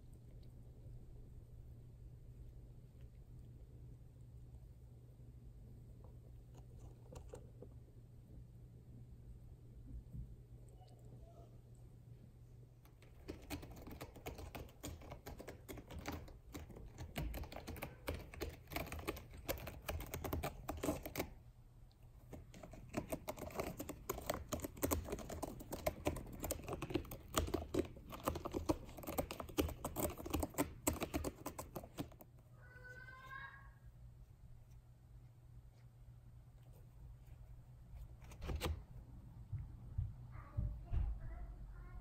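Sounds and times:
kitten scratching cardboard: 6.0 - 7.7, 13.0 - 21.4, 22.2 - 32.2, 36.6 - 38.9.

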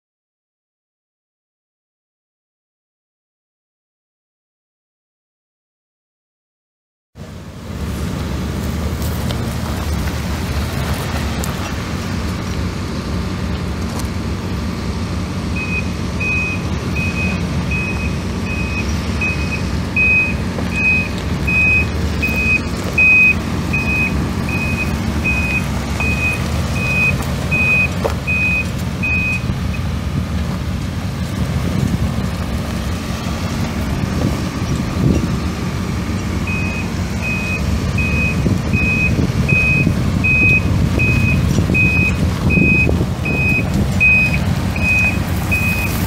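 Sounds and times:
truck engine running: 7.2 - 46.0
high electronic beeps: 15.6 - 29.8, 36.5 - 46.0.

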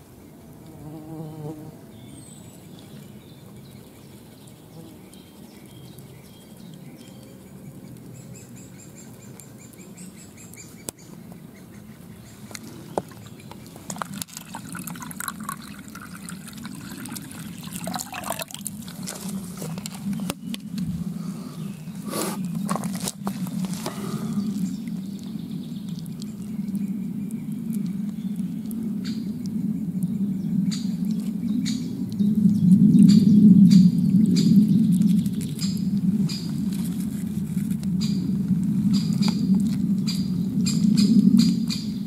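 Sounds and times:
water splashing and dripping: 13.0 - 20.1.

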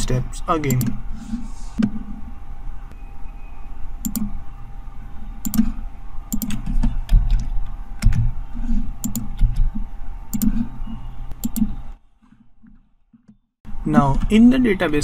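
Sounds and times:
faint steady hum: 0.0 - 12.9
computer mouse clicking: 4.0 - 4.3, 5.4 - 8.2, 9.0 - 10.6, 11.3 - 11.7.

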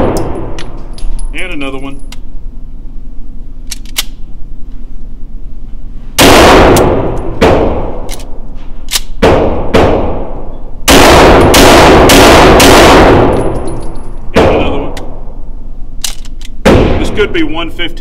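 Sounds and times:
pistol slide clicks: 3.6 - 4.2
loud gunshots with echo: 6.2 - 8.1, 9.2 - 13.7, 14.3 - 15.0, 16.6 - 17.6.

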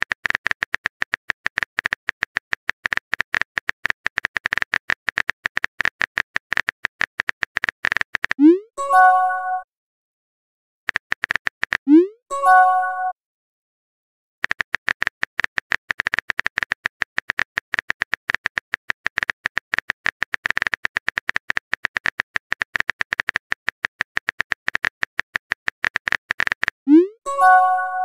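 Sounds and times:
phone keyboard clicks: 0.0 - 8.4, 10.9 - 11.9, 14.4 - 26.8.

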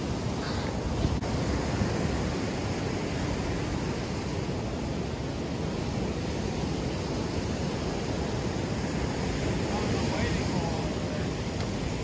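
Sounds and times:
surf breaking on beach: 0.0 - 12.0
wind rumbling on microphone: 0.0 - 12.0.

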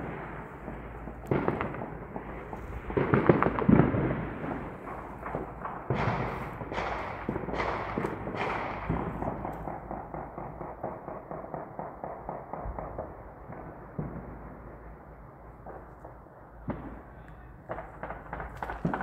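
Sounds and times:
loud bangs with echo: 0.0 - 14.3, 16.6 - 19.0
distant pops and crackles: 0.0 - 19.0.

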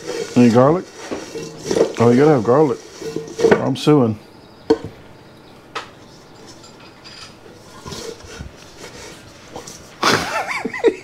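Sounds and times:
faint scraping and rubbing: 0.0 - 4.1, 6.0 - 10.0.

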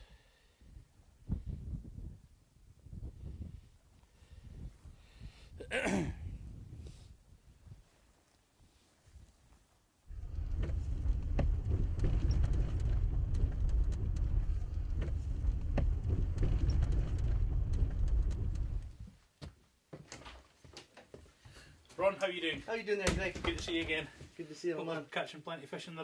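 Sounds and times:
knocks and clicks: 10.1 - 19.1
road and wind noise: 10.1 - 19.1.

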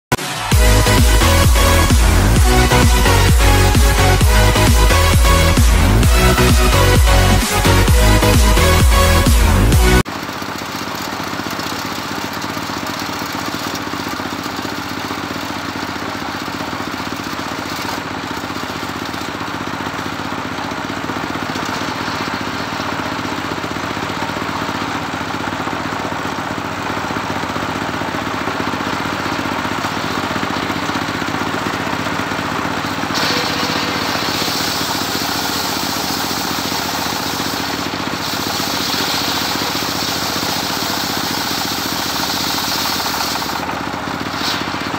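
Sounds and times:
saw blade cutting wood: 20.9 - 25.0, 32.8 - 44.9
circular saw blade humming: 27.2 - 44.9.

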